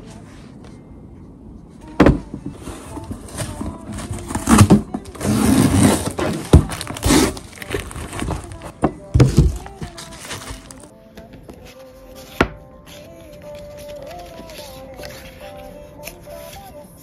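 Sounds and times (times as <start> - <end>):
cardboard rustling and scraping: 2.5 - 10.9
knocks on cardboard parcel: 6.2 - 7.3, 8.1 - 10.0.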